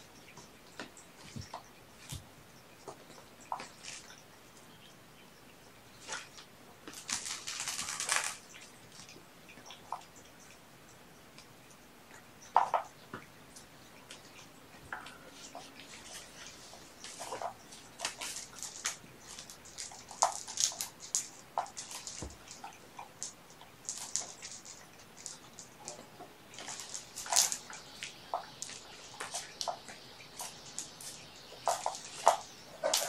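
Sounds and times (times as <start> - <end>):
kittens scrabbling and rustling: 15.0 - 33.0.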